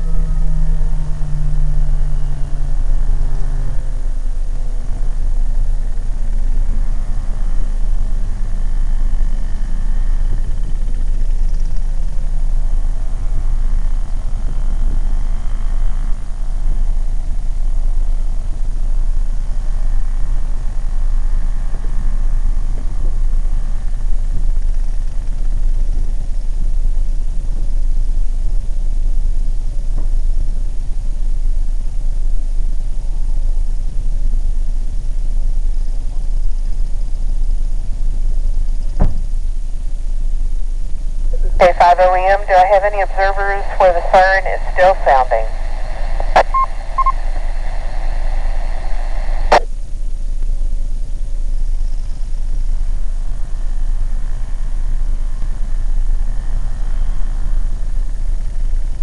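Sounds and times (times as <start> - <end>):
distant warning sirens: 0.0 - 10.8, 41.4 - 49.6
low rumble: 0.0 - 59.0.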